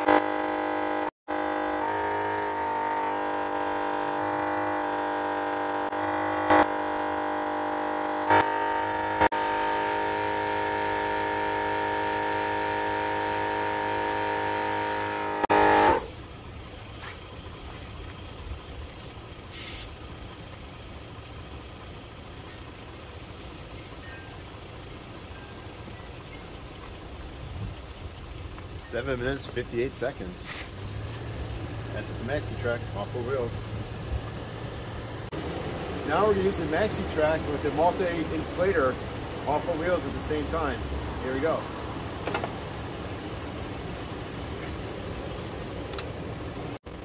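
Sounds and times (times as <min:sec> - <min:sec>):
air compressor buzzing whine: 0:00.0 - 0:16.3.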